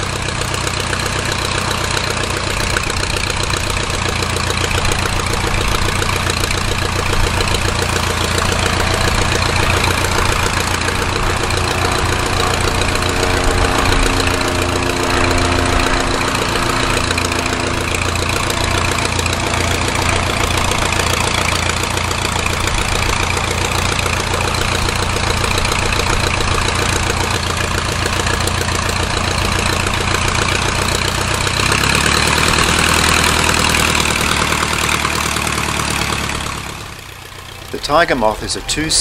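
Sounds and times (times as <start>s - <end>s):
propeller plane engine idling: 0.0s - 39.0s.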